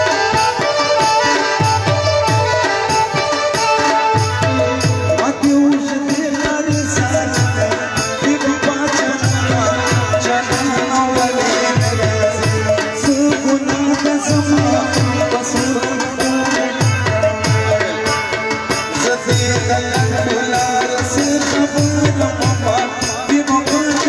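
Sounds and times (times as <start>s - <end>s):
drum beating a rhythm: 0.0s - 24.0s.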